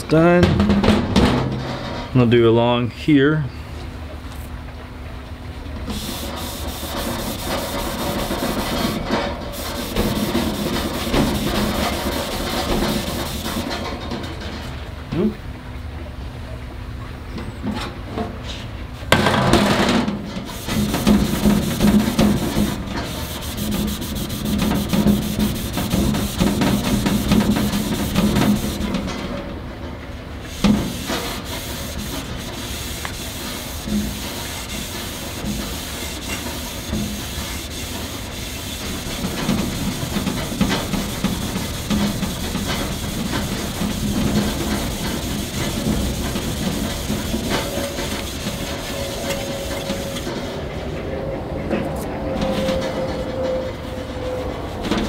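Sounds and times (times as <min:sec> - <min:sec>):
pad scrubbing steel: 0:05.9 - 0:13.9, 0:20.4 - 0:29.1, 0:30.5 - 0:50.6.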